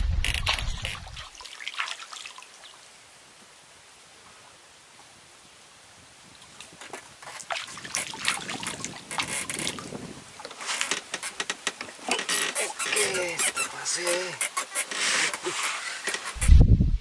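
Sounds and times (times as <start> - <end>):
water sloshing: 0.2 - 2.8, 6.6 - 16.4.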